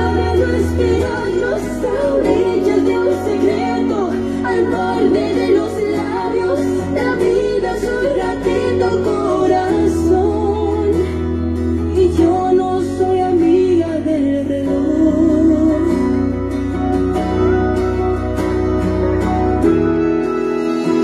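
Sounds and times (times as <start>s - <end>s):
person singing: 0.0s - 16.5s
bass: 0.0s - 21.0s
guitar: 0.0s - 21.0s.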